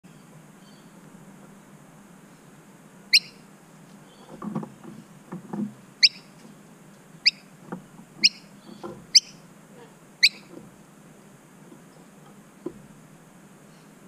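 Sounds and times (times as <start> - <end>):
bird chirps: 0.1 - 1.0, 3.1 - 3.4, 6.0 - 6.3, 7.2 - 7.5, 8.2 - 9.4, 10.2 - 10.5.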